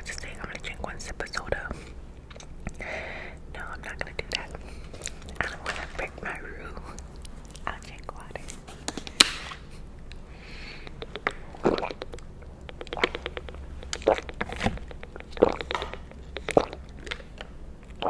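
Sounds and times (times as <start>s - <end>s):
person gulping water: 10.8s - 18.0s.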